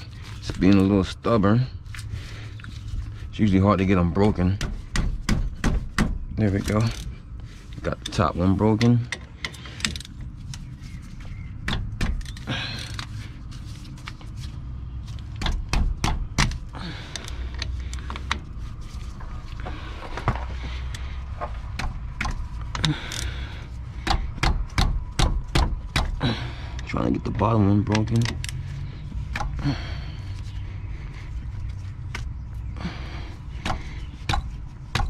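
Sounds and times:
hand tools clicking on metal: 21.8s - 23.4s, 24.0s - 28.6s.

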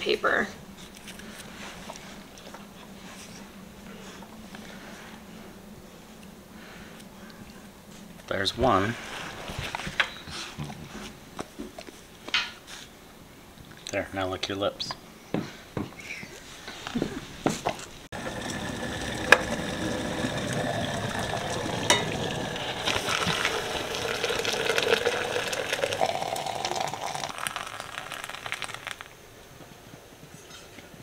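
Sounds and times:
water pouring into a press: 18.2s - 29.1s.

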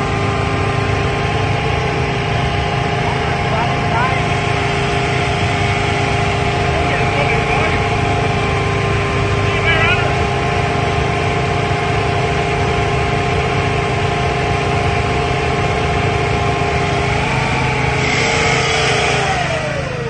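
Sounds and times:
steady whining note: 0.0s - 20.0s
tractor engine running under load: 0.0s - 20.0s.

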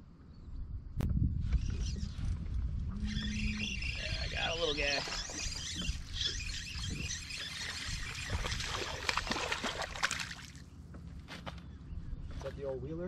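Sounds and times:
water splashing and trickling: 3.4s - 10.6s.

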